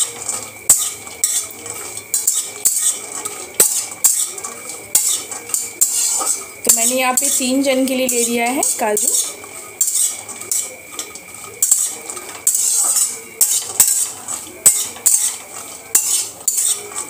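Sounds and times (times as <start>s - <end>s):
metal spoon scraping pan: 0.0s - 17.0s
spoon knocking on pan: 8.0s - 17.0s.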